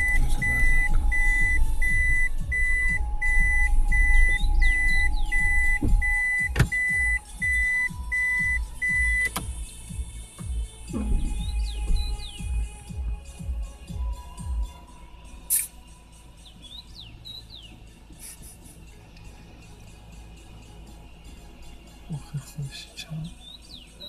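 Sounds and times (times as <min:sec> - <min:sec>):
car warning chime beeping: 0:00.0 - 0:09.6
low cabin rumble: 0:00.0 - 0:13.3.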